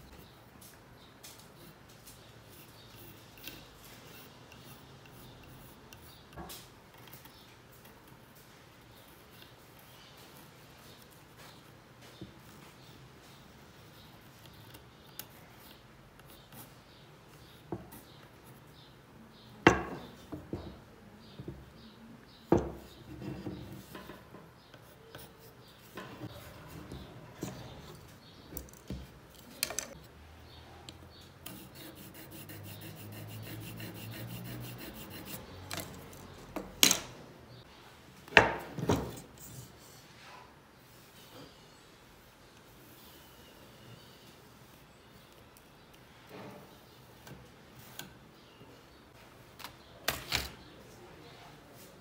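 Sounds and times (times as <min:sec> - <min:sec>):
pencil scratching on wood: 0:02.5 - 0:06.5, 0:24.6 - 0:28.0, 0:31.4 - 0:36.0.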